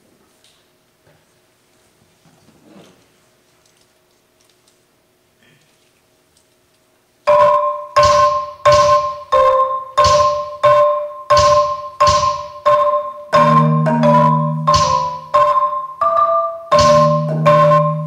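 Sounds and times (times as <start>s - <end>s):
marimba notes: 7.3s - 18.0s.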